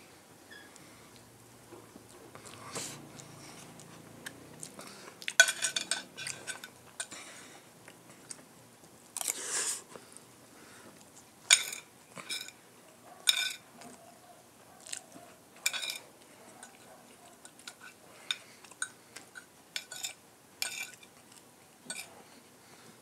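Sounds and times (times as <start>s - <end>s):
cutlery clinking on ceramic plate: 5.4s - 7.1s, 11.5s - 12.6s, 13.3s - 13.6s, 15.6s - 16.7s, 18.8s - 21.1s, 21.9s - 22.1s.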